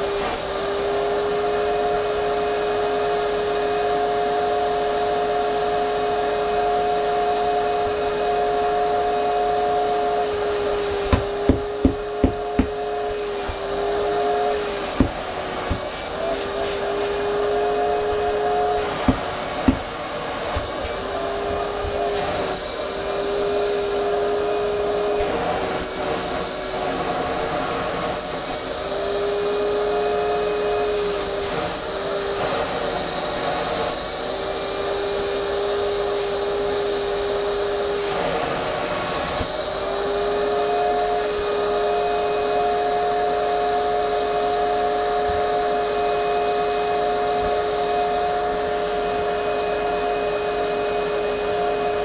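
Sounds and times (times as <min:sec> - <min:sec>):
vacuum cleaner whine: 0:00.0 - 0:52.0
sharp knocks: 0:11.1 - 0:12.8, 0:15.0 - 0:15.9, 0:19.0 - 0:19.9.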